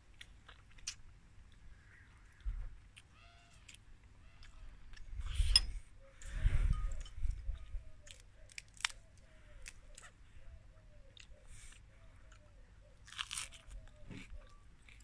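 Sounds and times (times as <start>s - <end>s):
lettuce leaf tearing: 8.1s - 9.0s, 13.1s - 13.8s.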